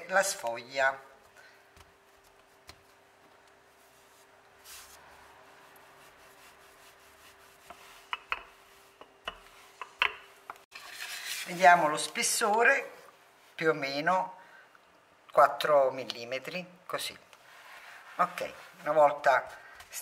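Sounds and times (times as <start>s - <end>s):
rolling pin rubbing on dough: 1.2s - 9.8s.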